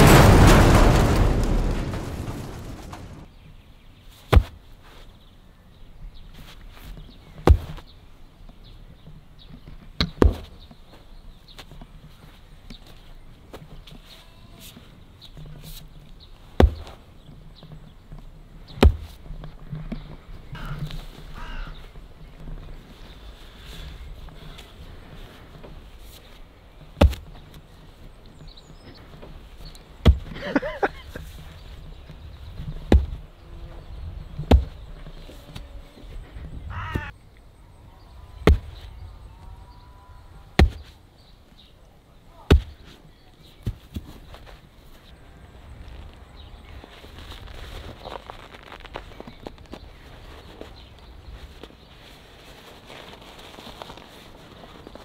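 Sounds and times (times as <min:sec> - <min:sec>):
sharp heavy thumps: 0:00.0 - 0:03.3, 0:16.6 - 0:17.0, 0:18.7 - 0:19.4, 0:26.9 - 0:27.5, 0:30.0 - 0:30.6, 0:32.0 - 0:35.6, 0:38.4 - 0:39.2, 0:40.5 - 0:41.0, 0:42.4 - 0:43.0
sledgehammer blows: 0:00.0 - 0:03.3, 0:38.0 - 0:41.0
bird calling: 0:20.0 - 0:25.0, 0:29.6 - 0:43.6.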